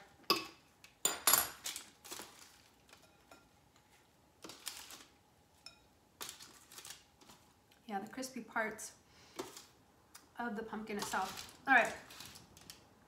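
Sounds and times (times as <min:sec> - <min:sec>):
faint steady hum: 0:00.0 - 0:13.0
food scraping and rustling: 0:01.6 - 0:03.2, 0:03.8 - 0:05.2, 0:06.2 - 0:07.6, 0:10.8 - 0:12.9.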